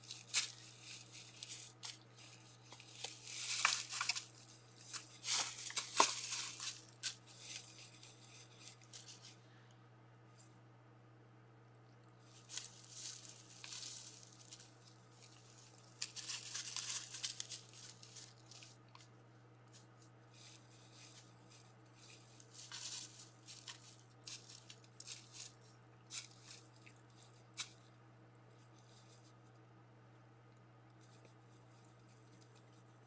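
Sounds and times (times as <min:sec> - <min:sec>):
animals rustling in dry leaves: 0:00.0 - 0:09.4, 0:12.2 - 0:19.0, 0:19.7 - 0:27.8
steady low hum: 0:00.0 - 0:33.0.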